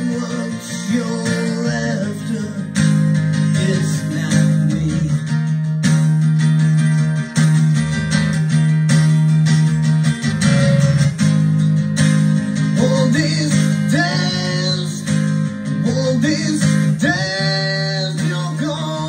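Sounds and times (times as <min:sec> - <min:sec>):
person singing: 0:00.0 - 0:05.5, 0:12.6 - 0:19.0
strummed guitar: 0:00.0 - 0:19.0.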